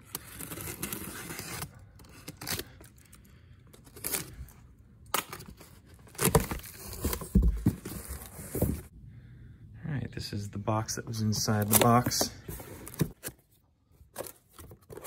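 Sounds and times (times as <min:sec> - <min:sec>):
cardboard box being opened: 0:05.4 - 0:08.9, 0:11.6 - 0:13.4.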